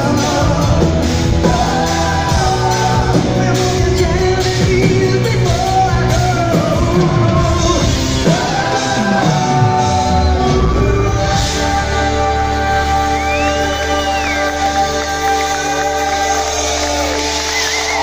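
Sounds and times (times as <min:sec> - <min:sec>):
drums: 0:00.0 - 0:18.0
person singing: 0:00.0 - 0:18.0.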